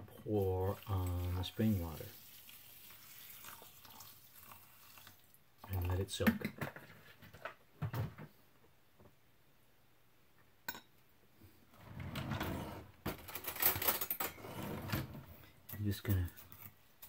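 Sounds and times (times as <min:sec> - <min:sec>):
utensils clattering and rustling: 0:11.9 - 0:16.8.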